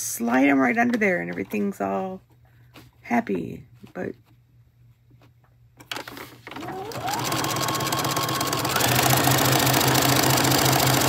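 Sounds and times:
sewing machine stitching: 0:05.9 - 0:11.0.

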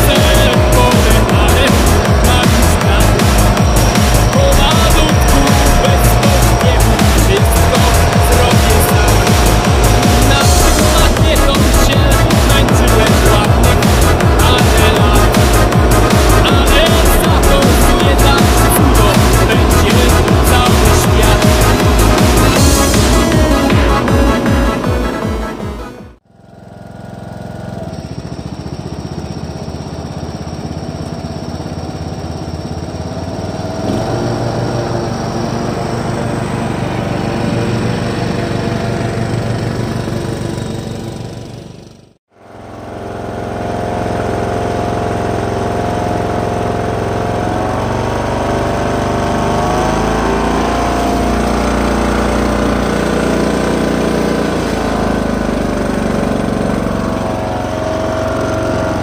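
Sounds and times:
ride-on mower engine running: 0:00.0 - 0:59.0.

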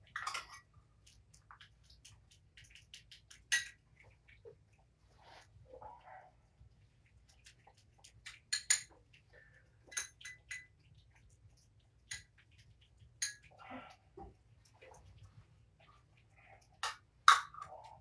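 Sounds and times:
metal spoon clinking on bowls: 0:00.1 - 0:00.7, 0:08.5 - 0:08.9, 0:09.9 - 0:10.7, 0:13.2 - 0:13.5.

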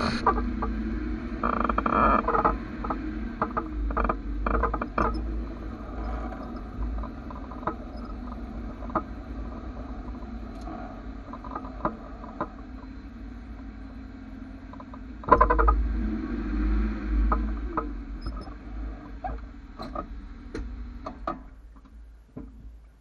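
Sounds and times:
low rumble: 0:00.0 - 0:22.2
sharp knocks and clicks: 0:06.0 - 0:09.2, 0:14.6 - 0:15.8, 0:17.2 - 0:22.8.

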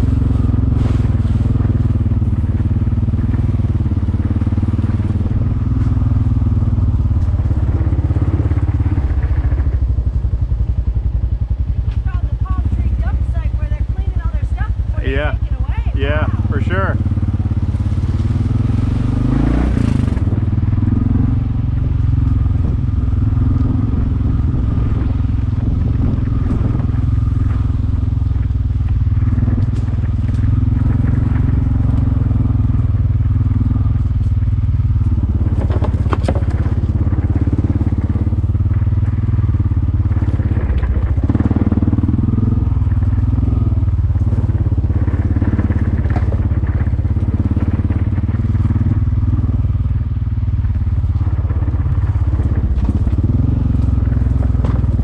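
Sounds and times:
utility vehicle engine running: 0:00.0 - 0:55.0.

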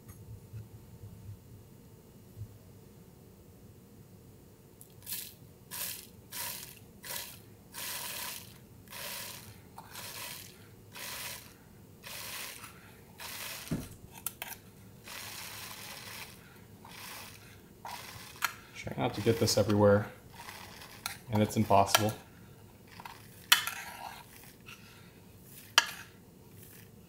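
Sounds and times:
ground coffee pouring into filter: 0:15.1 - 0:22.2.

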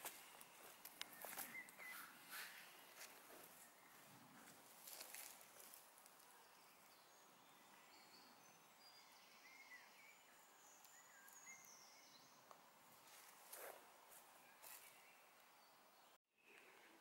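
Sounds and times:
faint woodland ambience: 0:00.0 - 0:17.0
high bird chirps: 0:01.1 - 0:02.4.

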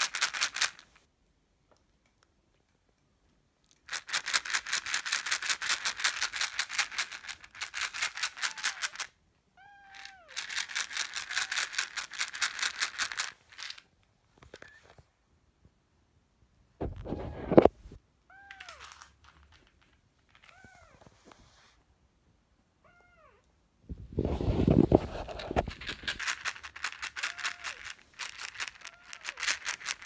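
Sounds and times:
fast rasping rattle: 0:03.9 - 0:09.1, 0:10.4 - 0:13.8, 0:24.7 - 0:30.0
kitten mewing: 0:08.4 - 0:09.0, 0:09.6 - 0:10.4, 0:22.8 - 0:23.4, 0:27.0 - 0:28.0, 0:28.8 - 0:29.6.

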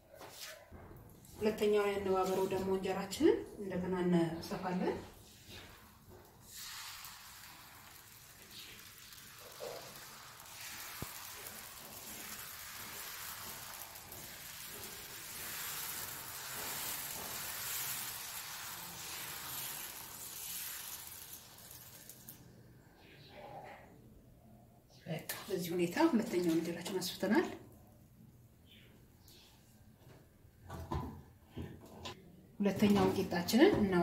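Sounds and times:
batter sizzling on hot griddle: 0:05.0 - 0:22.6.

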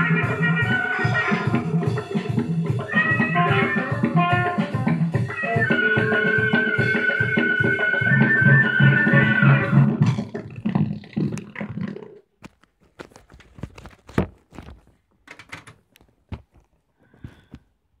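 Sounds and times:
live band music on laptop speaker: 0:00.0 - 0:11.0
small clicks and knocks: 0:12.4 - 0:16.8.

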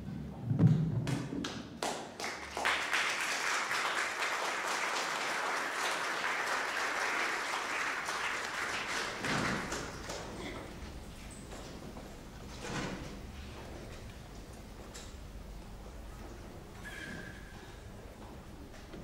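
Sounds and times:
audience applauding: 0:01.4 - 0:10.7.

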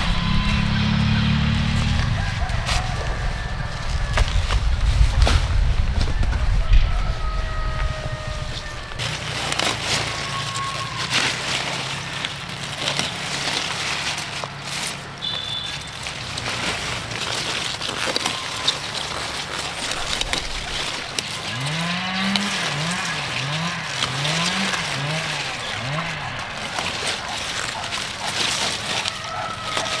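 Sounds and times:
low pitched rising and falling sound: 0:00.0 - 0:09.0
leafy greens rustling: 0:00.0 - 0:30.0.

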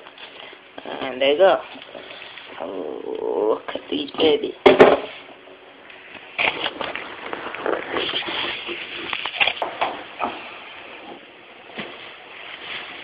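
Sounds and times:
plastic wrapping crinkling: 0:06.0 - 0:09.7.

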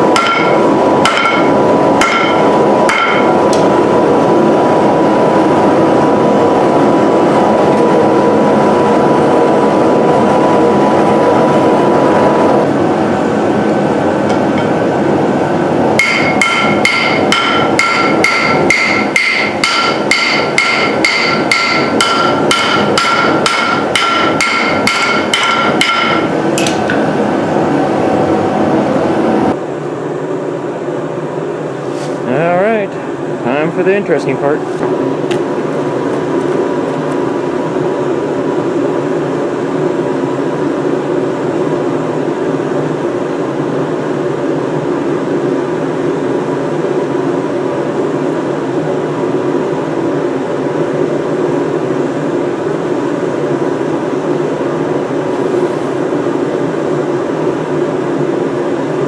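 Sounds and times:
forge roaring: 0:00.0 - 0:29.6
hammer striking metal on anvil: 0:00.1 - 0:03.6, 0:16.0 - 0:27.0.

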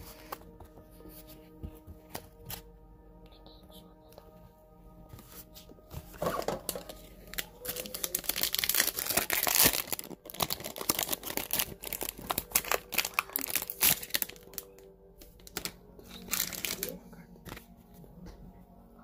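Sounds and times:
plastic packaging crinkling: 0:06.0 - 0:17.7.

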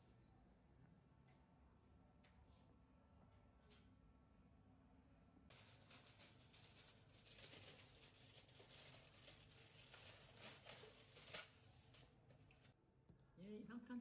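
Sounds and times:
plastic wrappers crinkling: 0:05.5 - 0:12.8.

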